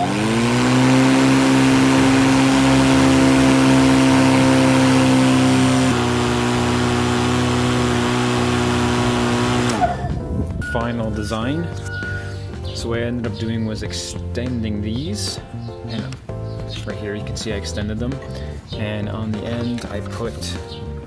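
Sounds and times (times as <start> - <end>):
electric lawn mower running: 0.0 - 10.3.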